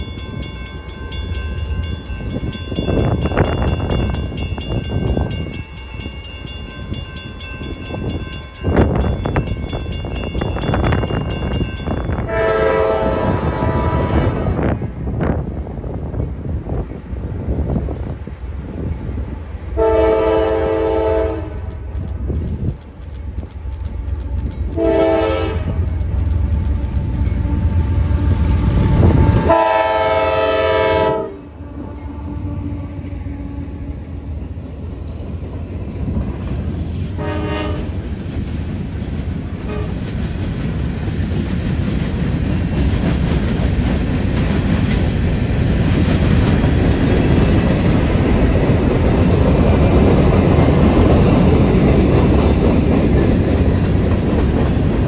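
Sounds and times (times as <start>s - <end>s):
train rumble and wheel noise: 0.0s - 55.0s
locomotive horn blasts: 12.2s - 14.7s, 19.8s - 21.7s, 24.8s - 25.8s, 29.3s - 33.8s, 37.2s - 38.0s.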